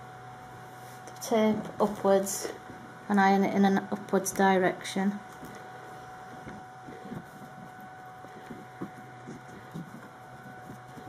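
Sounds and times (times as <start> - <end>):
faint steady hum: 0.0 - 11.0
fabric rustling: 5.3 - 11.0.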